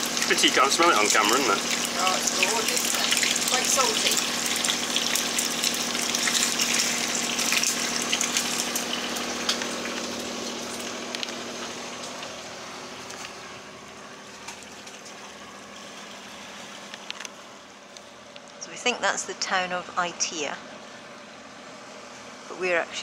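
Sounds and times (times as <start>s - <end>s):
bacon sizzling in a frying pan: 0.0s - 16.9s.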